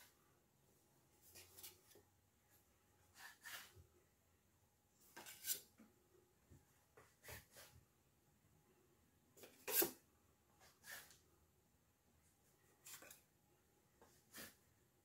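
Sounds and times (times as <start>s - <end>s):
faint scrapes and rustles: 1.1s - 3.9s, 5.0s - 5.8s, 12.6s - 13.3s, 14.0s - 14.8s.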